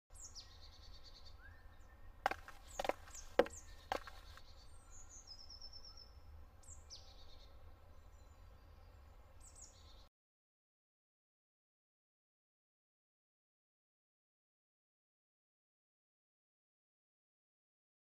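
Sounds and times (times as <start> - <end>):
forest birds singing: 0.1 - 10.1
sharp knocks: 2.3 - 4.3.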